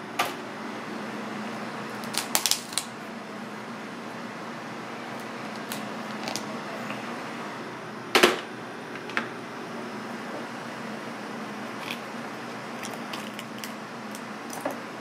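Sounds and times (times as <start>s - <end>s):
low kitchen hum: 0.0s - 15.0s
crab shell cracking: 2.0s - 2.9s, 12.7s - 14.6s.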